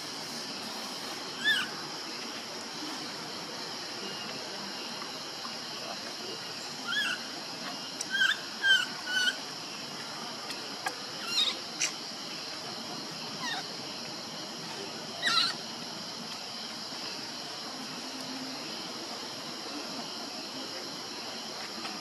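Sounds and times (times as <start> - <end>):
steady background hiss: 0.0 - 22.0
baby monkey squeaking cries: 1.4 - 1.7, 6.9 - 7.2, 8.1 - 9.4, 11.2 - 11.9, 15.2 - 15.6.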